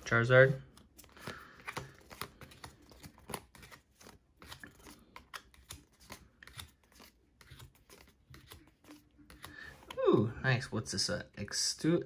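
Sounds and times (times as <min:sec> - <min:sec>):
trading cards sliding and flicking: 0:00.7 - 0:10.0.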